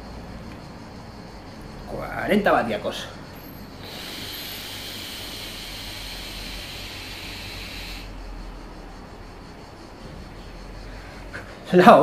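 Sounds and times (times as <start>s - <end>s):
e-cigarette air hissing: 3.6s - 9.0s.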